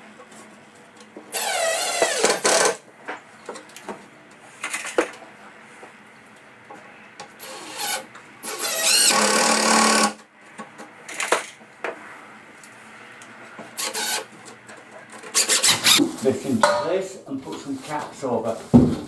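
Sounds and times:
cordless drill driving screws: 1.3 - 2.8, 7.4 - 10.2, 13.8 - 14.3, 15.3 - 16.0.

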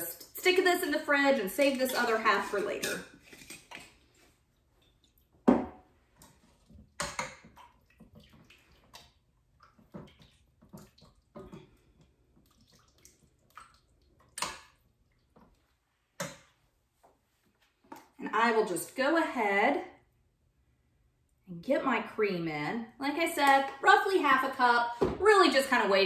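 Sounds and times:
metal tongs scraping a pan: 1.6 - 4.0
liquid sloshing: 1.6 - 16.5.

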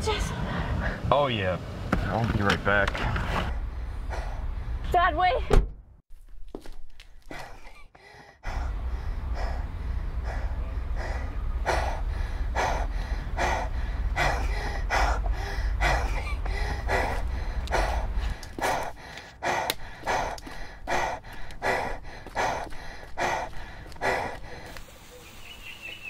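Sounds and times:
girl gasping and panting: 7.3 - 9.6, 10.3 - 24.8.

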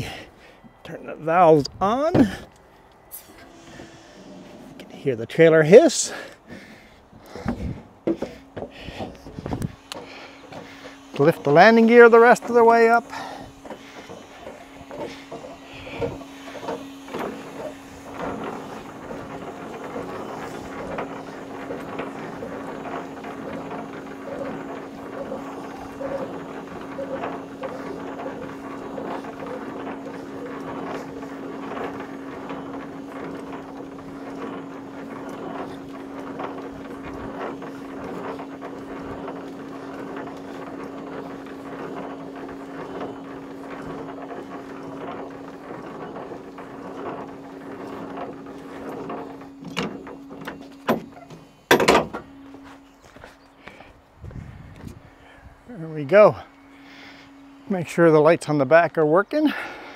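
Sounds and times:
clanks and rattles: 0.0 - 55.7
truck engine idling: 0.0 - 58.2.

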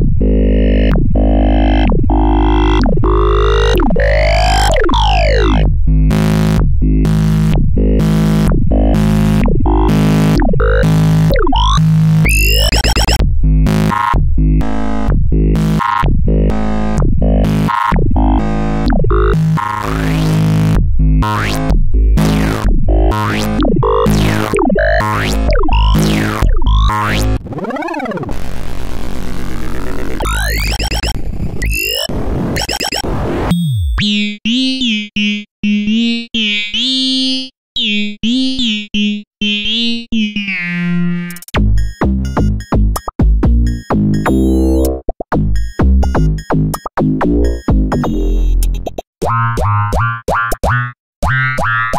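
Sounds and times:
heavy steady bass: 0.0 - 27.4, 41.6 - 44.8, 45.4 - 48.5
held synth tones: 12.3 - 13.2, 30.2 - 34.0
falling synth sweep: 27.4 - 33.9.

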